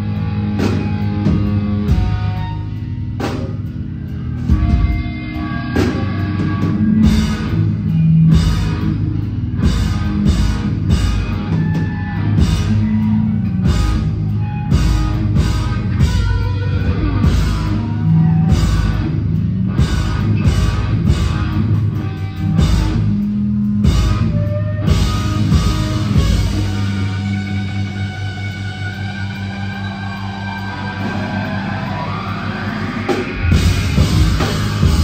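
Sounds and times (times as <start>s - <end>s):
bass guitar: 0.0s - 35.0s
electric guitar: 0.0s - 35.0s
drum and cymbal hits: 29.4s - 35.0s.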